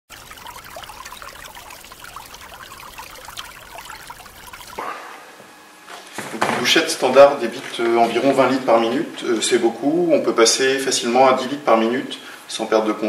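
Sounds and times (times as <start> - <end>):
water trickling with small plops: 0.0 - 4.8.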